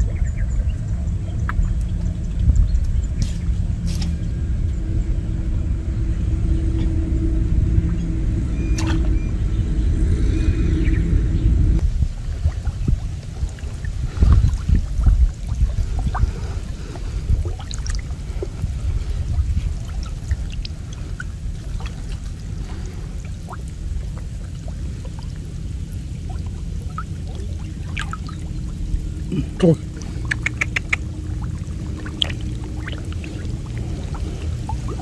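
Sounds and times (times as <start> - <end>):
water sloshing and trickling: 0.0 - 4.8, 7.7 - 9.5, 11.8 - 35.0
small splashes and drips: 11.8 - 35.0.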